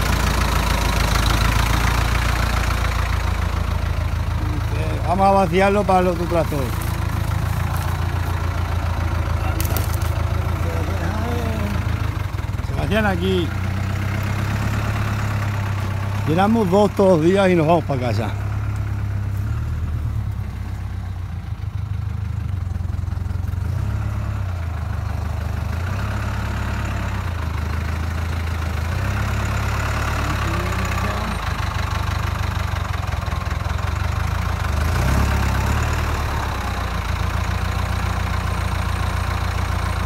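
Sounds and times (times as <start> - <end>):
tractor engine running: 0.0 - 40.0.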